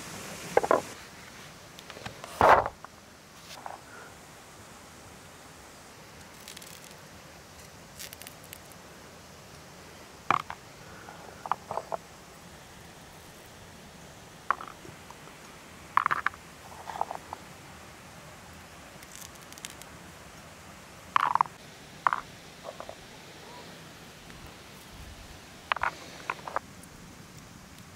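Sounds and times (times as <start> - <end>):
chestnuts knocking in wooden bowls: 10.3 - 10.6, 16.0 - 16.4, 21.2 - 23.0.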